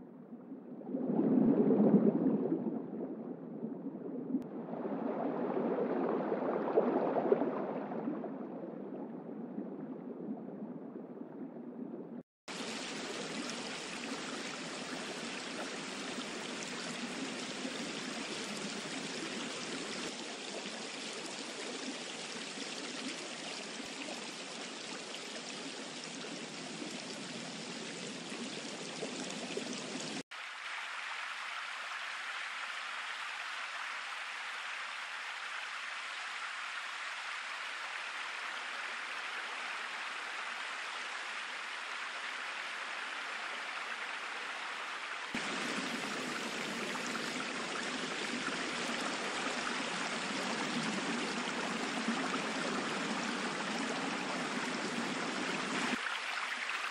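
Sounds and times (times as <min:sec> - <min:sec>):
synthetic running water hiss: 0:12.5 - 0:44.7, 0:45.3 - 0:56.9.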